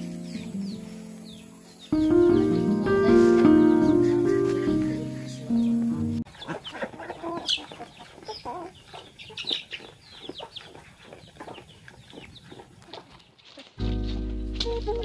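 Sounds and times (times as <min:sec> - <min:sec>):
chicks peeping: 0:00.0 - 0:15.0
hens clucking: 0:02.3 - 0:13.7.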